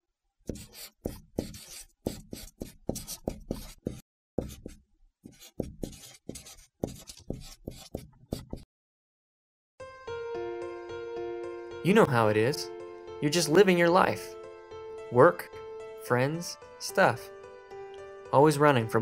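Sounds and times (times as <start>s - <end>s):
marker drawing on paper: 0.5s - 8.7s
music: 9.8s - 19.0s.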